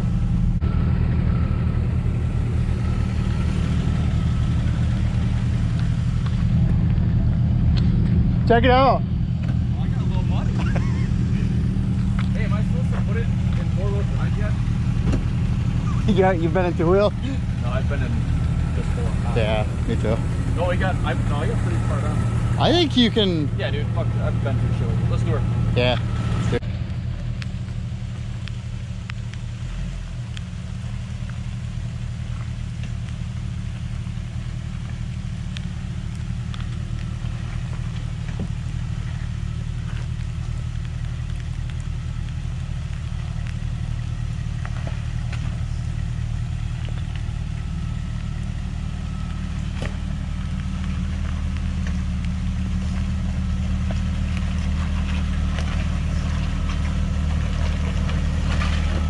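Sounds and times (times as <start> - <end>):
car engine droning: 0.0 - 59.0
light ticks: 26.9 - 29.5, 34.0 - 48.6.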